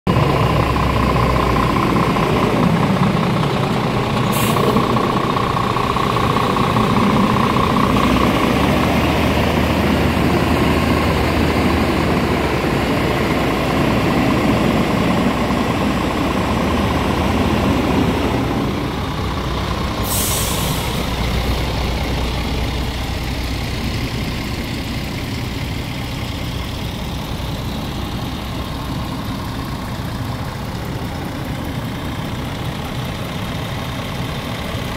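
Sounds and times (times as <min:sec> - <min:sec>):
diesel truck engine idling: 0:00.1 - 0:34.9
compressed air hissing: 0:04.3 - 0:04.9, 0:20.0 - 0:21.1.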